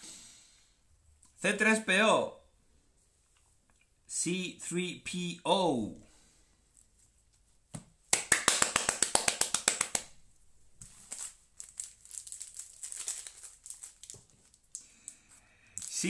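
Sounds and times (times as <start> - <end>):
foil pack crinkling: 10.8 - 16.0.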